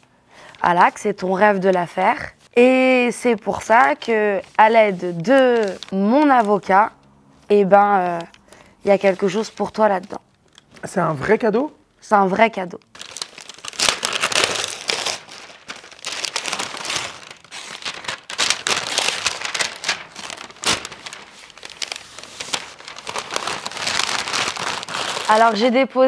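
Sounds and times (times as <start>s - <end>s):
wrapping paper crinkling: 3.6s - 6.8s, 12.8s - 25.7s.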